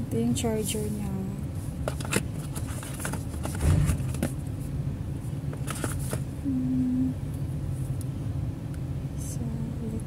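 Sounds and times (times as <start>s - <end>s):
low background rumble: 0.0s - 10.0s
packaging clicks and rustles: 1.8s - 4.4s, 5.5s - 6.3s.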